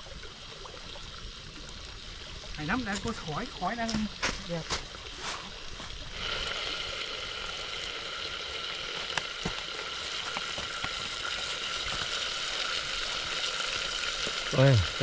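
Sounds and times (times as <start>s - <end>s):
beef sizzling in a pan: 0.0s - 15.0s.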